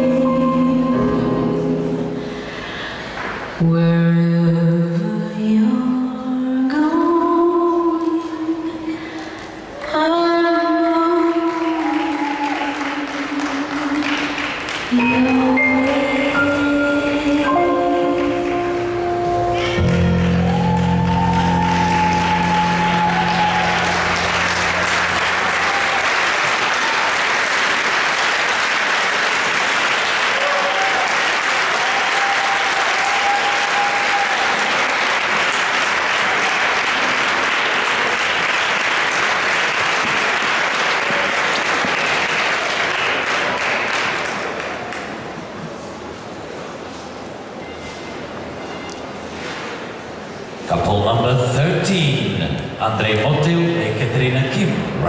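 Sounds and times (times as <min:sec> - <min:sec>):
audience applauding: 0:11.2 - 0:15.0, 0:19.6 - 0:45.6
dance music held notes: 0:14.9 - 0:26.0.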